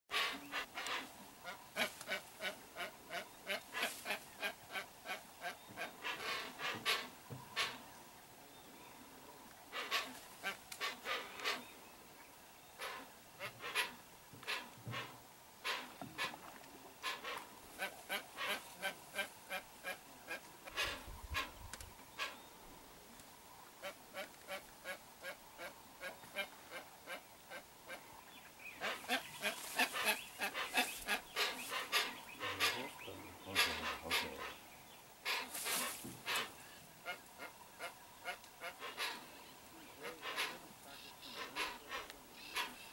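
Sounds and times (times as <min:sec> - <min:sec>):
birds giving rough calls: 0:00.1 - 0:07.9, 0:09.7 - 0:11.8, 0:12.8 - 0:21.6, 0:22.2 - 0:22.4, 0:28.7 - 0:42.9.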